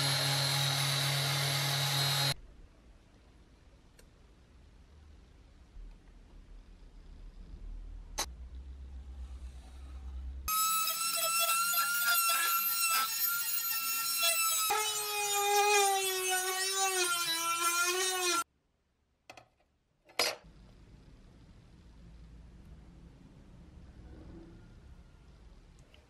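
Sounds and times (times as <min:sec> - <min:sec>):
rotary tool grinding metal: 0:10.5 - 0:18.4.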